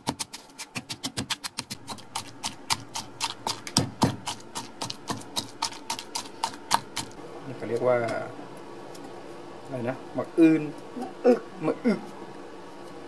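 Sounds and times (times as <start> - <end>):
pestle pounding in stone mortar: 0.0 - 7.1.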